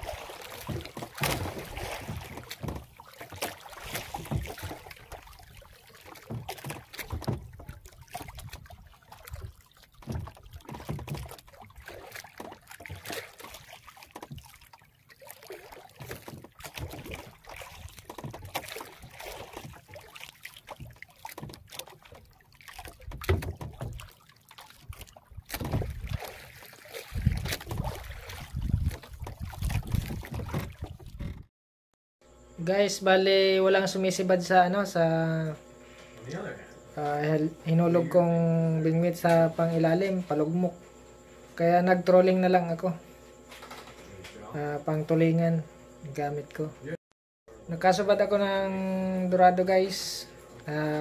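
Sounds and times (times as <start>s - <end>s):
water splashing against boat hull: 0.0s - 31.5s, 47.9s - 51.0s
wind on microphone: 27.1s - 31.4s.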